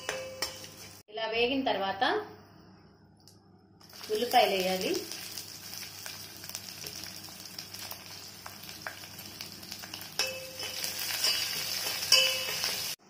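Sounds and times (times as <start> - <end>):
metal ringing on steel pot: 0.0 - 0.9, 9.9 - 13.0
onions sizzling in hot oil: 0.4 - 1.0, 3.8 - 13.0.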